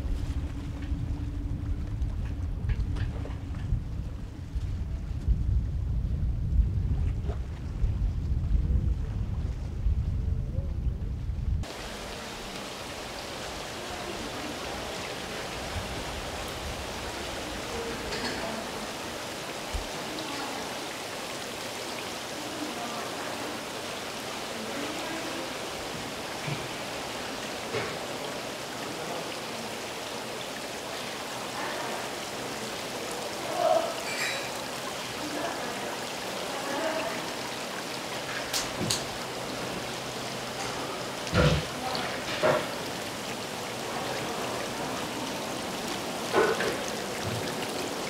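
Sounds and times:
water rushing and bubbling: 11.6 - 48.0
faint voices: 22.1 - 38.5.

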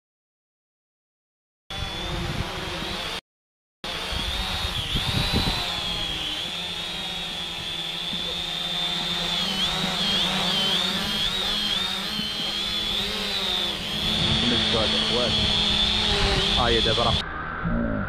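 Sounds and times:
drone propeller whine: 1.7 - 3.2, 3.8 - 18.0
wind on microphone: 1.8 - 2.6, 4.1 - 6.2, 13.8 - 17.8.

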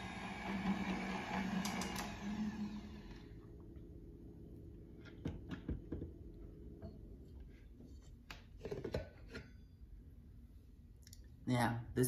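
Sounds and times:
stand mixer whisking: 0.0 - 3.2
mixer head clicks: 1.6 - 2.2.

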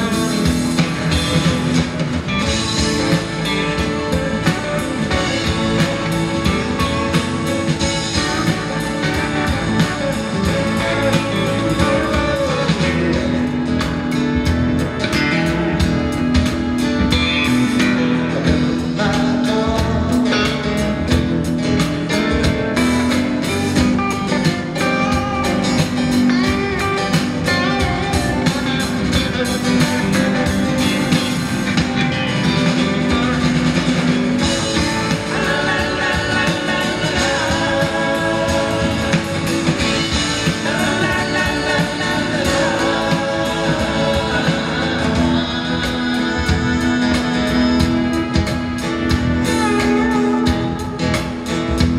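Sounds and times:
second guitar: 0.0 - 51.9
strummed acoustic guitar: 0.0 - 51.9.

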